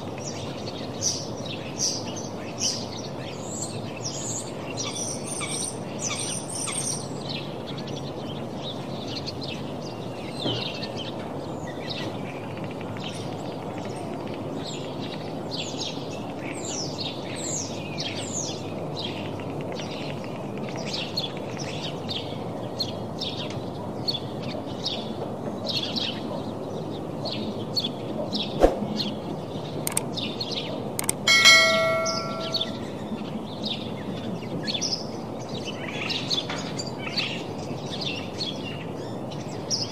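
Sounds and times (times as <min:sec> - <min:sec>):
sharp click: 0:29.9 - 0:30.1, 0:31.0 - 0:32.8
bell-like ringing tone: 0:31.3 - 0:32.9.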